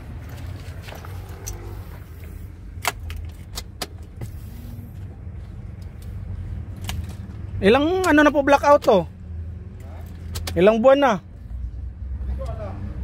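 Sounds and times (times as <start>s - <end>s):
car keys jingling: 0.0s - 4.2s.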